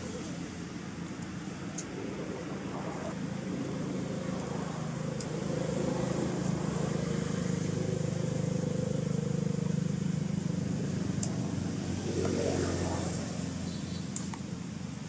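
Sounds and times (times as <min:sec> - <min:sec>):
vehicle engine running: 0:03.2 - 0:15.0.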